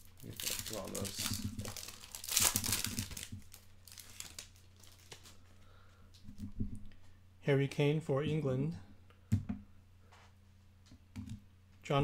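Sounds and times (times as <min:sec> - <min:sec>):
foil wrapper crinkling: 0:00.0 - 0:05.5.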